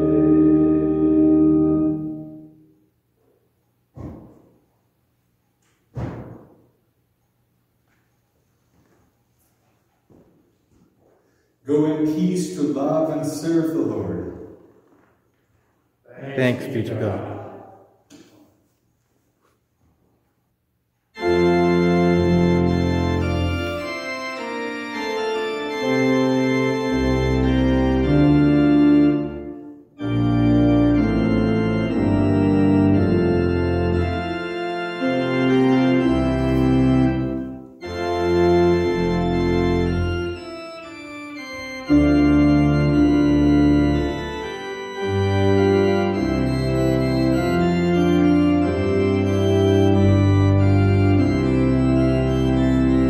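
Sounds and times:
organ chords with deep bass: 0:00.0 - 0:02.8, 0:11.7 - 0:14.6, 0:21.2 - 0:53.0.

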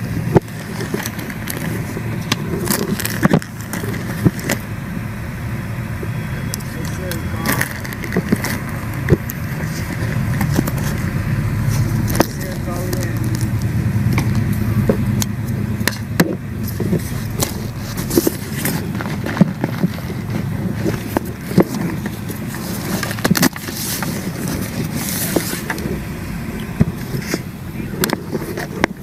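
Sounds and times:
rustling handling noise: 0:00.0 - 0:04.8, 0:06.0 - 0:29.0
sharp clicks and knocks: 0:06.5 - 0:25.9, 0:26.6 - 0:29.0.

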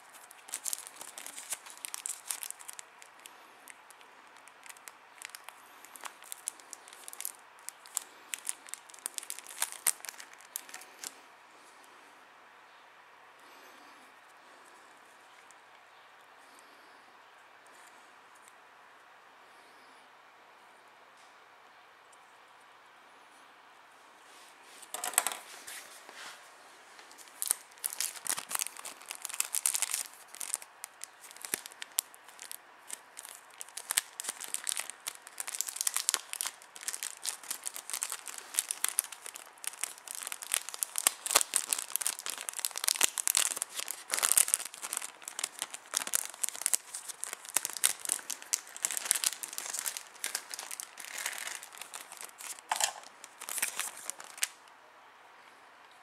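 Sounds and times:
plastic packaging crinkling: 0:00.0 - 0:11.2, 0:24.8 - 0:25.9, 0:27.0 - 0:54.7.

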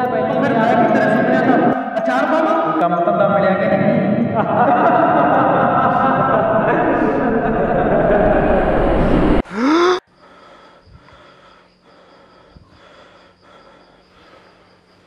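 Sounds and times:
man gasping: 0:09.4 - 0:14.8
crickets chirping: 0:09.4 - 0:15.0.

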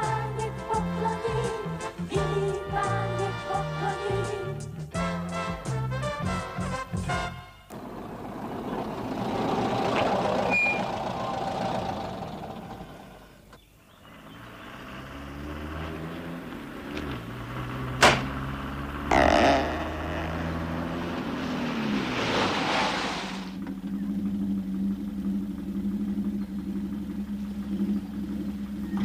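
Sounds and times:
car engine hum: 0:00.0 - 0:29.0
sharp knock: 0:18.0 - 0:18.3
hiss: 0:22.1 - 0:23.6.

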